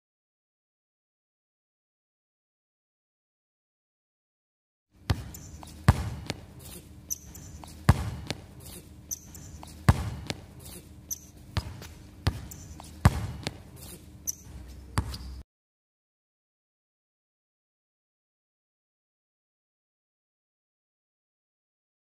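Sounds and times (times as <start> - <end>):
basketball bouncing on hard court: 5.0 - 15.4.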